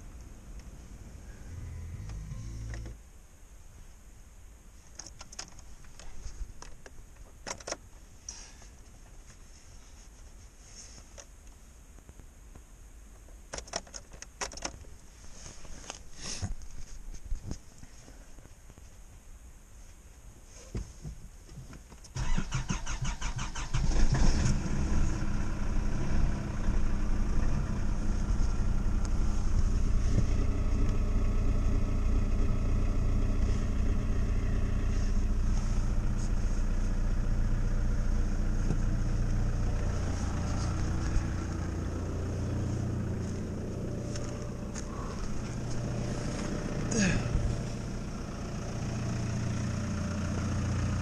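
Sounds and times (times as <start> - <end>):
diesel engine starting and idling: 0.0 - 3.0, 22.2 - 51.0.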